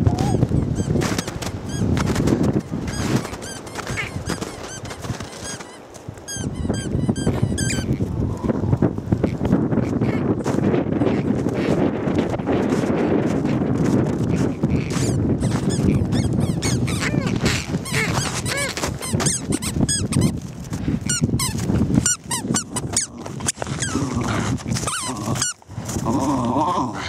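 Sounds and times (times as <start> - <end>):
wind rumble on microphone: 0.0 - 27.0
footsteps crunching on snow: 0.4 - 6.6, 7.8 - 26.5
squeaky dog toy squeaking: 2.9 - 7.9, 15.0 - 20.3, 21.1 - 23.1, 24.8 - 25.6.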